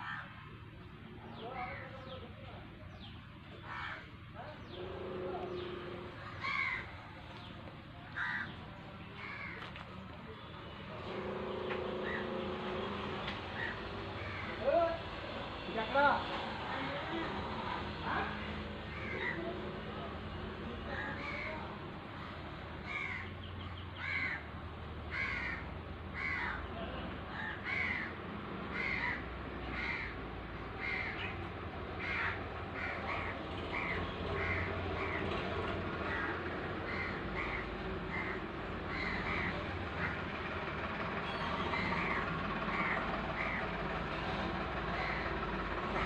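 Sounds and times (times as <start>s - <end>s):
bird harsh calls: 2.9s - 9.8s, 10.4s - 14.7s, 18.4s - 19.6s, 20.9s - 24.5s, 25.1s - 35.4s, 36.0s - 40.4s, 41.2s - 43.8s, 44.9s - 46.0s
steady low hum: 3.4s - 14.4s.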